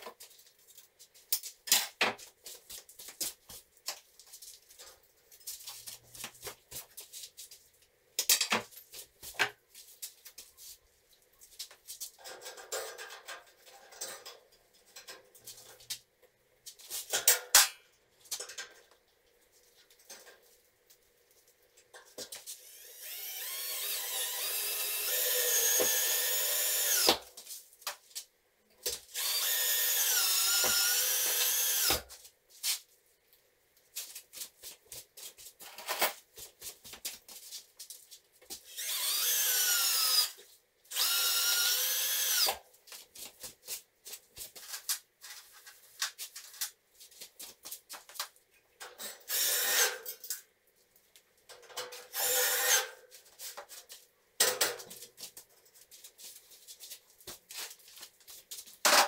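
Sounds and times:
cordless drill motor whine: 22.6 - 27.2, 29.2 - 32.0, 38.7 - 42.6, 49.3 - 49.8, 52.1 - 52.8.

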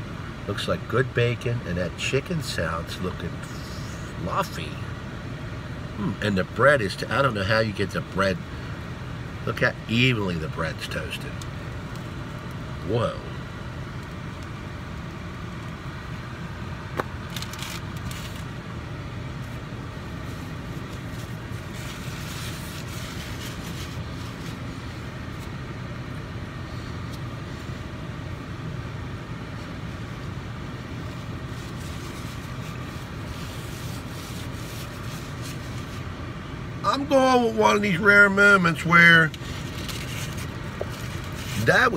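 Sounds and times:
low hum inside a car: 0.0 - 41.9
faint rustles and scrapes: 20.2 - 25.5, 31.0 - 36.1, 39.4 - 41.8.

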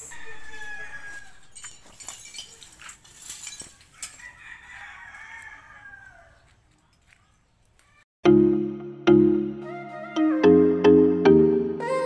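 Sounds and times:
rooster crowing: 0.0 - 1.6, 4.0 - 6.5.

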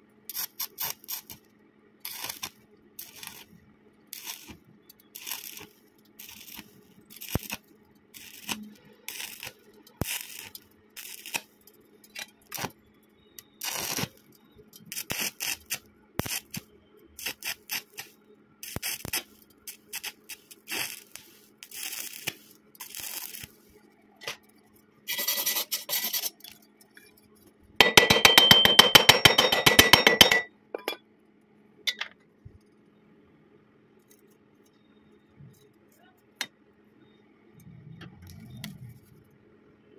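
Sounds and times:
welding arc crackling: 0.3 - 12.8, 13.4 - 26.6.

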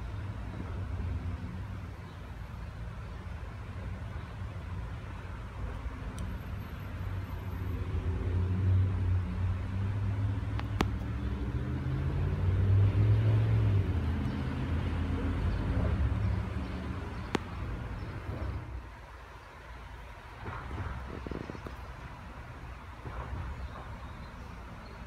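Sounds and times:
vehicle engine hum: 0.0 - 25.0
sharp clicks: 10.5 - 11.1.

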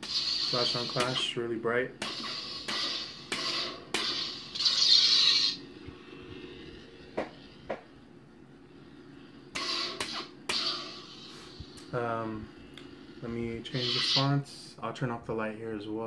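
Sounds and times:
lightsaber swing sounds: 0.0 - 1.3, 2.0 - 5.7, 9.6 - 11.9, 13.6 - 14.4
lightsaber low hum: 0.0 - 16.0.

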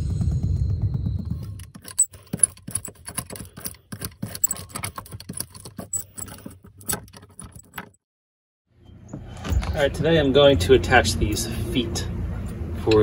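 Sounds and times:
metal roller clicking and crackling: 1.6 - 8.0.

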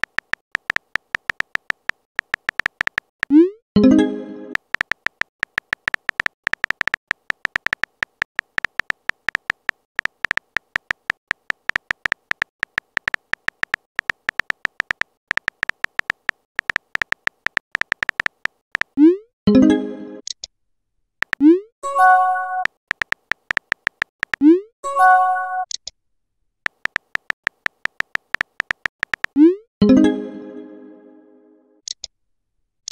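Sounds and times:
keyboard typing ticks: 0.0 - 3.5, 4.5 - 19.2, 21.2 - 24.6, 26.6 - 29.6.

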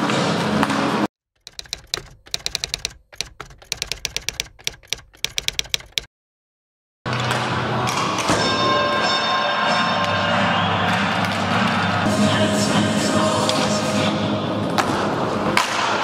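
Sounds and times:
typewriter key clacks: 1.4 - 6.1
music: 7.1 - 15.5.

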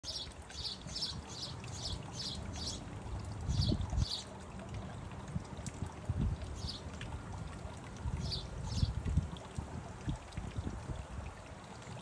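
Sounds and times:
bird chirping: 0.0 - 2.8
fountain water trickling: 0.0 - 12.0.

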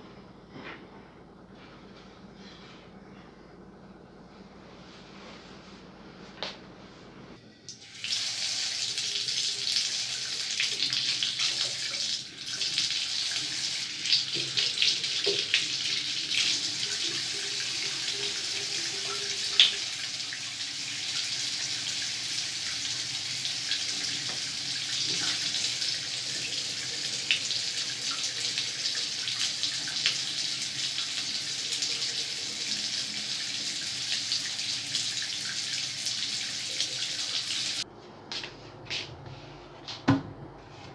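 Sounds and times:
tap water running into sink: 7.7 - 37.8.

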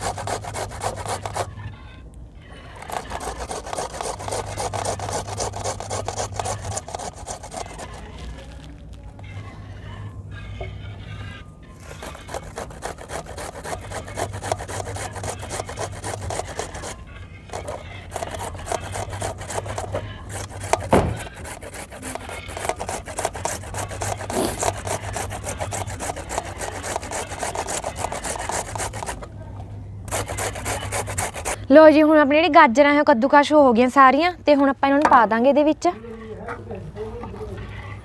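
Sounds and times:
carrots grated on metal grater: 12.0 - 29.2, 30.1 - 31.6.

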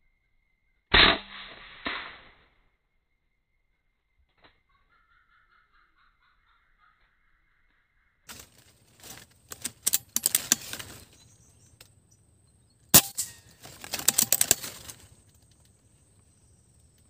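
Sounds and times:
rapid clicking and rattling: 9.4 - 11.2, 13.0 - 15.1
air rifle shot: 13.0 - 13.4.

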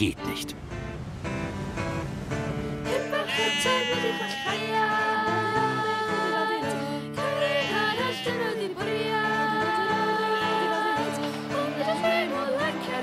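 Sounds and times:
person singing: 2.9 - 13.0.

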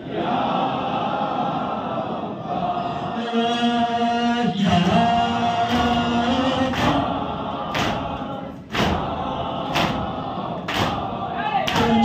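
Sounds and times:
crowd of men chanting: 0.0 - 12.0
chest beating slaps: 7.7 - 11.1, 11.7 - 12.0.

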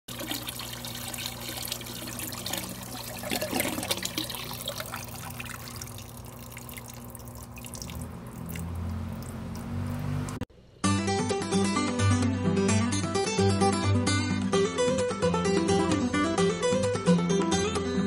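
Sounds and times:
water splashing into plastic tank: 0.1 - 9.9
water dripping: 0.1 - 10.4.

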